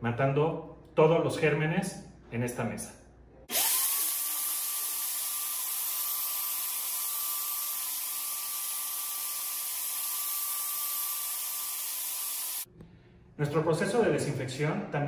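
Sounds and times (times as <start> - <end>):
electric fogger motor whine: 3.5 - 12.7.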